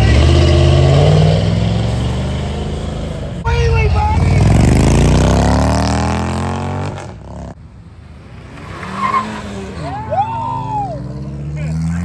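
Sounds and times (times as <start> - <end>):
motorcycle engine accelerating: 0.0 - 7.6
car engine passing: 0.0 - 12.0.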